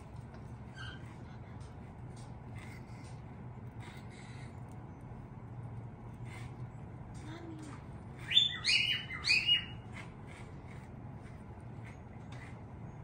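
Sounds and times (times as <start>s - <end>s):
lovebirds chirping: 8.2s - 9.9s.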